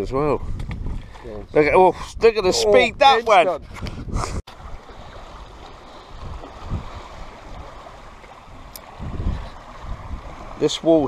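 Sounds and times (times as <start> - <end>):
water rushing: 4.5 - 11.0.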